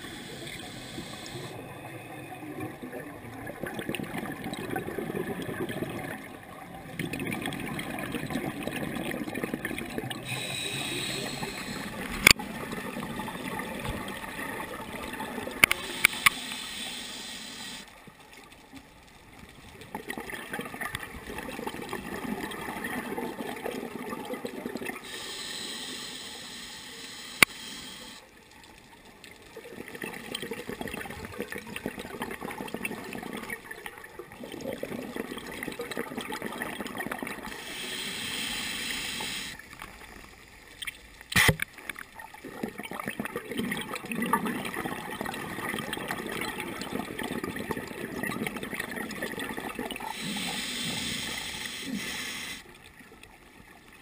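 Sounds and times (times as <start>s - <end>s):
regulator hissing inhale: 0.0s - 1.6s, 10.2s - 12.1s, 15.7s - 17.9s, 25.0s - 28.3s, 37.5s - 39.7s, 50.1s - 52.7s
exhaled bubbles gurgling: 0.0s - 17.8s, 19.7s - 28.2s, 29.5s - 40.1s, 42.2s - 52.9s
sharp clicks: 27.3s - 27.8s.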